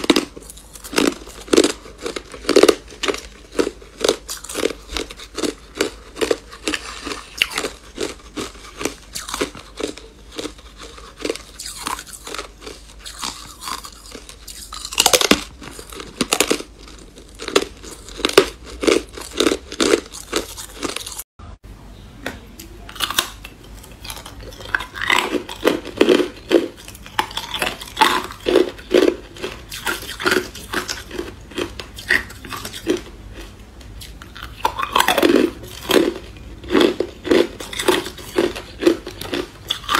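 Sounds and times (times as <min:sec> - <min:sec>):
person crunching ice: 0:00.0 - 0:21.2.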